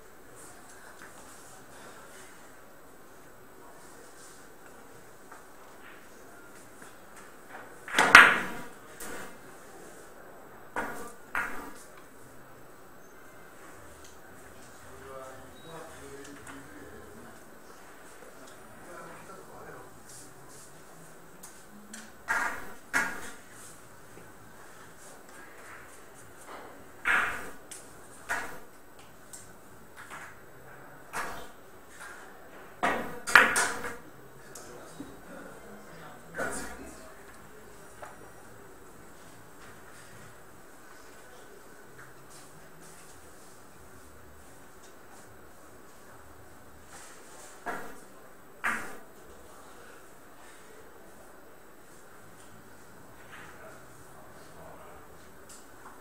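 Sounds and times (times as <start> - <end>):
cue striking ball: 7.9 - 8.6, 27.0 - 27.6.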